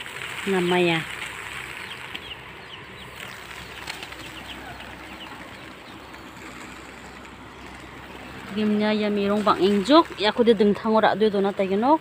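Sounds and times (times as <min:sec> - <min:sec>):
grain pouring onto plastic tarp: 0:00.0 - 0:11.8
faint bird chirps: 0:01.7 - 0:08.0.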